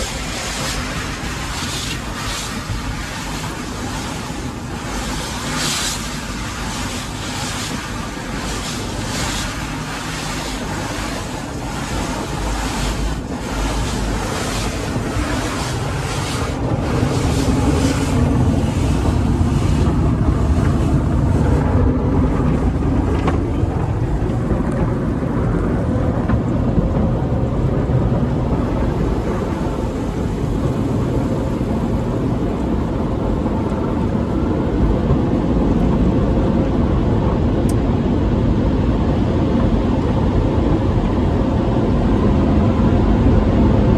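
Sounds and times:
cloth strips slapping on car: 0.0s - 23.4s
water and foam spraying: 0.0s - 36.6s
pumps and motors rumbling: 0.0s - 43.9s.

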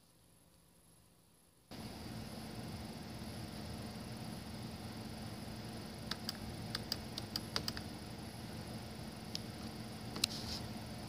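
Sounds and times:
low steady hum: 0.0s - 11.0s
computer mouse clicks: 6.1s - 7.9s.

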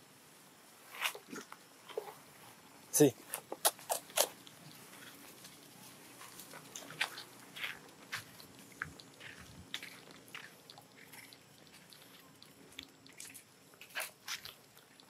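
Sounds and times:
animals moving over dry leaves: 3.3s - 15.0s.

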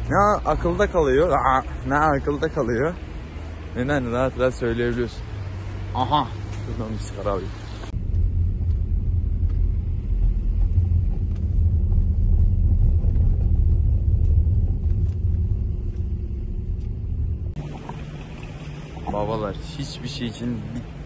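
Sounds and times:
car road and engine rumble: 0.0s - 21.0s.

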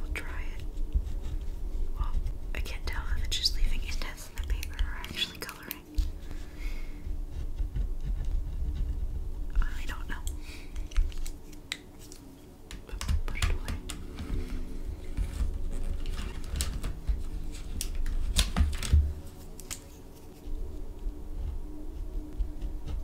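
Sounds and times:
plastic pens clicking and clattering: 10.3s - 14.0s.

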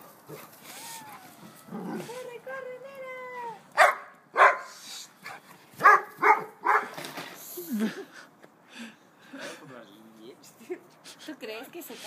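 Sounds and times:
dog barking: 3.8s - 4.7s, 5.8s - 6.9s.

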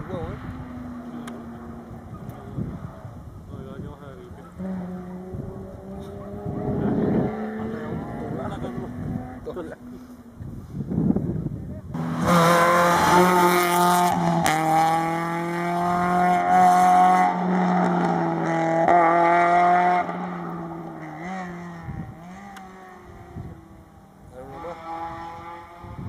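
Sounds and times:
rally car engine revving: 4.2s - 10.1s, 11.9s - 26.0s.

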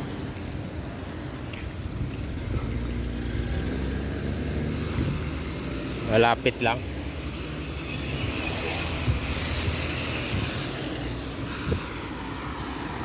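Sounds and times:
low traffic rumble: 0.0s - 13.0s
tyre hiss of passing car: 2.9s - 13.0s.

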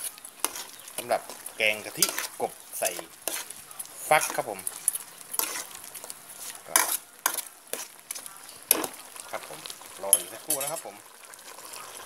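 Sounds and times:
ladle scraping a metal pot: 0.0s - 3.6s, 4.2s - 9.0s
faint sizzle: 0.0s - 12.0s.

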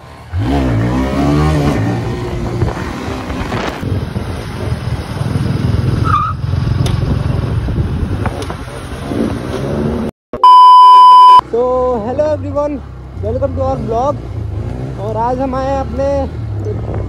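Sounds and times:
motorcycle engine and road noise: 0.0s - 10.1s, 11.4s - 17.0s
wind: 0.0s - 17.0s
electronic beep: 10.4s - 11.4s.

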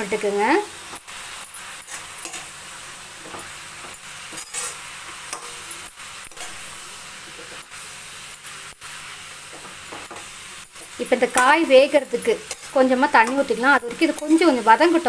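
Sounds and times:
vegetables sizzling in oil: 0.0s - 15.0s
ladle scraping and knocking pan: 3.2s - 6.7s.

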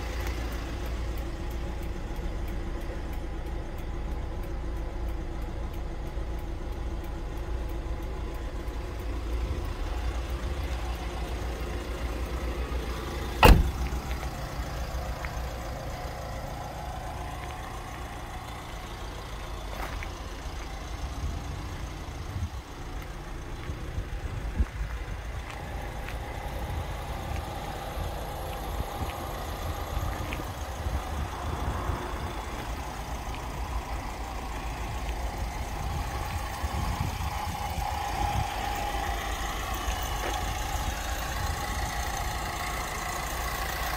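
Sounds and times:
diesel engine idling: 0.0s - 43.9s.

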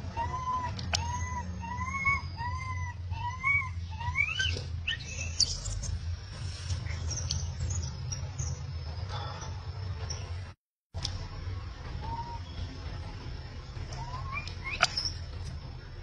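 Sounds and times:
baby monkey crying: 0.0s - 5.8s, 13.9s - 15.3s.

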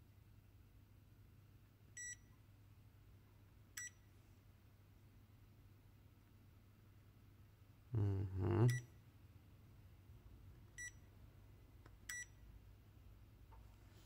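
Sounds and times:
man humming hmm: 7.9s - 8.9s.

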